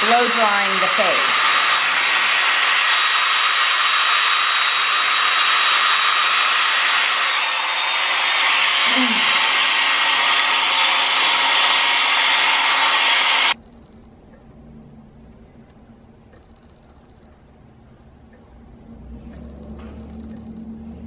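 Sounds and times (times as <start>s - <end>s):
hair dryer blowing air: 0.0s - 13.6s.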